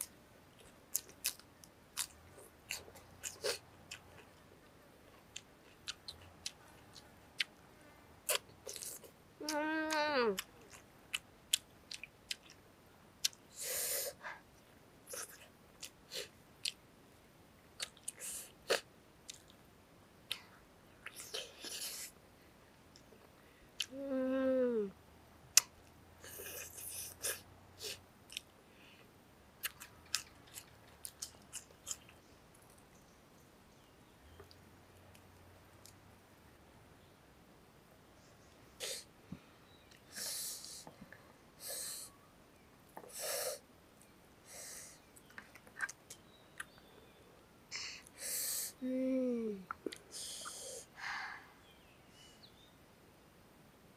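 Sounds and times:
person chewing food: 0.0s - 4.4s, 5.1s - 7.6s, 8.2s - 12.6s, 17.8s - 19.6s, 29.6s - 33.0s, 45.2s - 46.8s
person breathing through nose: 50.1s - 51.6s.

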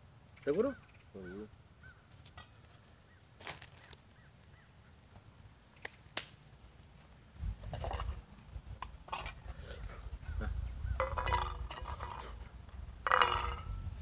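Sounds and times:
faint bird chirps: 0.3s - 5.0s.

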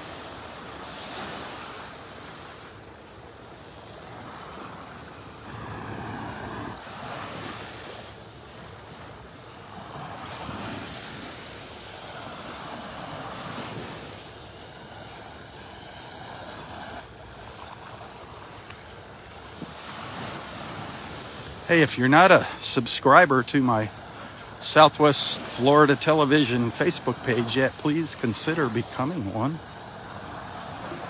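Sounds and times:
small waves breaking on sand: 0.0s - 31.0s
wind on microphone: 4.0s - 7.8s.

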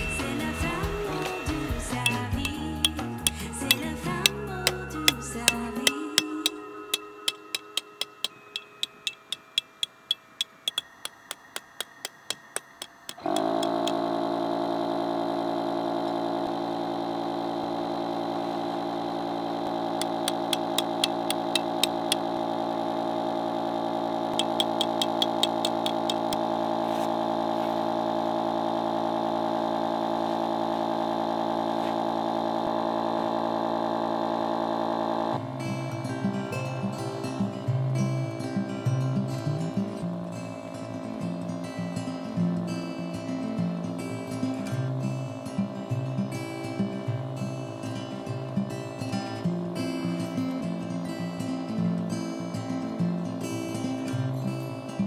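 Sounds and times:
electric air pump humming: 0.0s - 37.7s
regular sharp ticks: 2.0s - 14.0s, 20.0s - 22.2s, 24.3s - 26.4s.

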